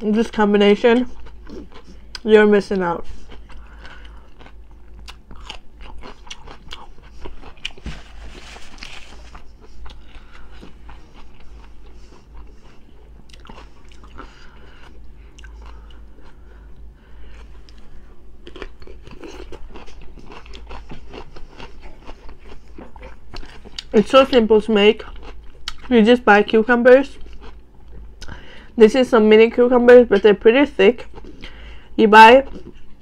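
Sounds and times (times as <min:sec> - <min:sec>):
person crunching and chewing: 0:01.0 - 0:02.3, 0:03.0 - 0:24.4, 0:25.0 - 0:25.9, 0:27.1 - 0:28.4, 0:31.0 - 0:31.6, 0:32.5 - 0:33.0.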